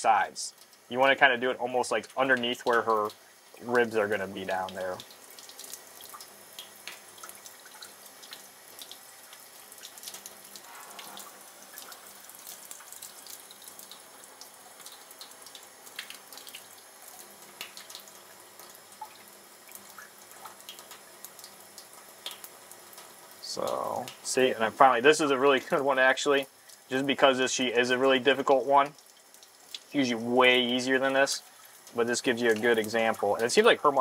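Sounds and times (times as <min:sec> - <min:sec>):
water splashes and drips: 0:00.0 - 0:34.0
tap water running into sink: 0:02.2 - 0:27.3.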